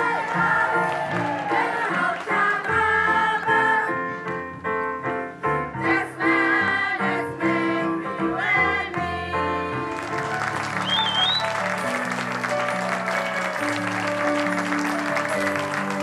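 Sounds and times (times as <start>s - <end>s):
audience applauding: 0.0s - 2.8s, 9.9s - 16.0s
children's choir singing: 0.0s - 4.1s, 5.8s - 10.3s.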